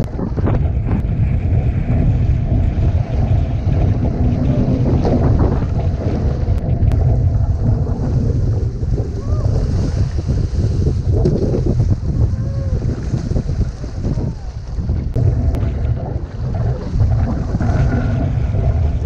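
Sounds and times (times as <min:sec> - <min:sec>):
water splashing along hull: 0:00.0 - 0:19.0
wind buffeting microphone: 0:00.0 - 0:19.0.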